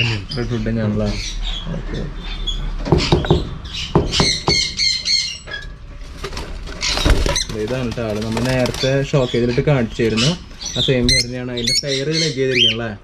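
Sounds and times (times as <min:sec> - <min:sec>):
lovebirds chirping and squawking: 0:00.0 - 0:13.0
sharp knocks: 0:02.8 - 0:04.8.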